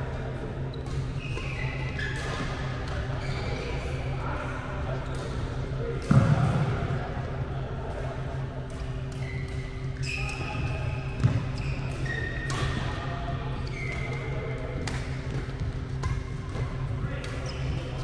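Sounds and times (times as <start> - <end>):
racket hitting shuttlecock: 14.8 - 17.4.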